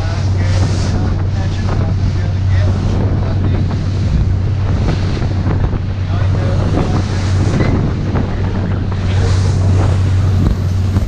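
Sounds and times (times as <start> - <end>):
boat engine hum: 0.0 - 11.0
waves splashing against hull: 0.0 - 11.0
wind buffeting microphone: 0.0 - 11.0.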